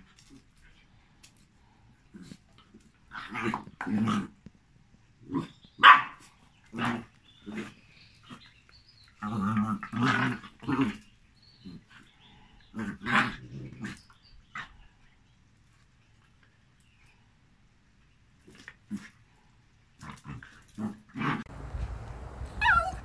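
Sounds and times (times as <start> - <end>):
dogs barking: 5.8 - 6.2, 21.4 - 23.0
dogs growling: 9.2 - 12.0.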